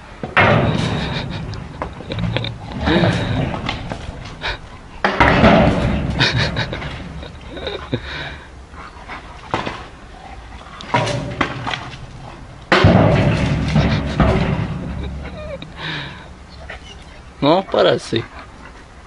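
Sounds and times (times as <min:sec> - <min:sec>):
dog panting: 0:07.3 - 0:11.0, 0:16.5 - 0:19.0
stick knocking on metal gate: 0:12.7 - 0:15.8.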